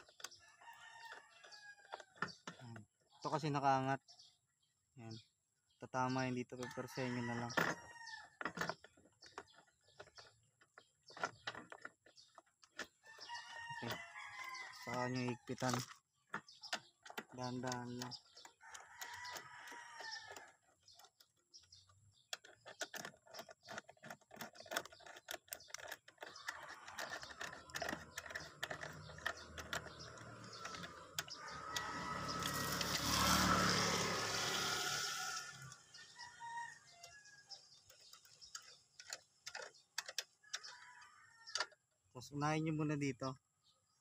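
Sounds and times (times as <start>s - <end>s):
rooster crowing: 30.7s - 37.6s.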